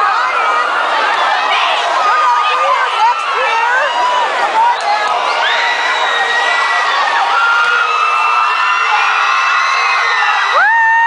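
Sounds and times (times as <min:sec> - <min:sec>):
crowd cheering and screaming: 0:00.0 - 0:11.0.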